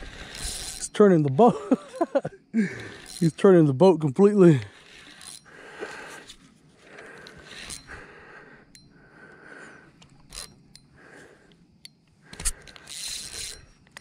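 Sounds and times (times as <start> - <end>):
spinning reel cranking: 0.0 - 2.0, 2.6 - 8.9, 10.2 - 10.8, 12.3 - 14.0.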